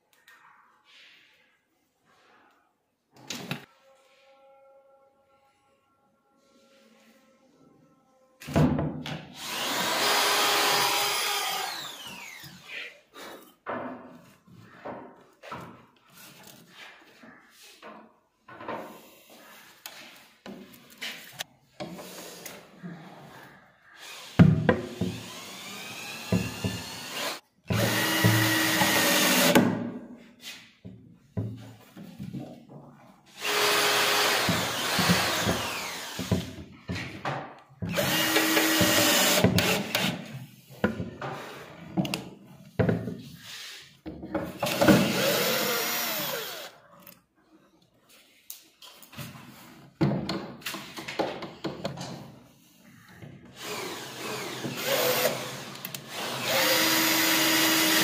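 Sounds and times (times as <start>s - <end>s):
cordless drill driving screws: 9.4s - 12.7s, 24.0s - 29.6s, 33.4s - 36.5s, 37.9s - 40.2s, 44.6s - 46.7s, 53.6s - 58.0s.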